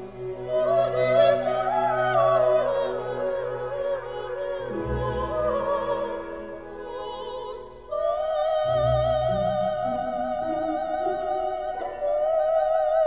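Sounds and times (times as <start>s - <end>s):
low musical accompaniment: 0.0s - 13.0s.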